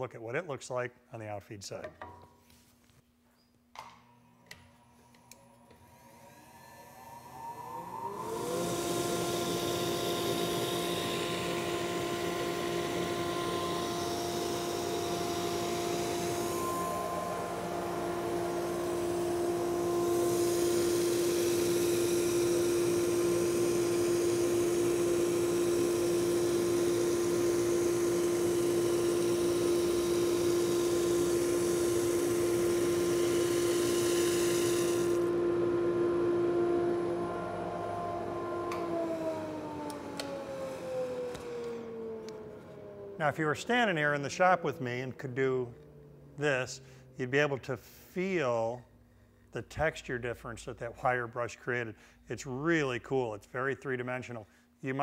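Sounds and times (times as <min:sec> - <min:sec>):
sander humming: 0:05.5 - 0:46.6.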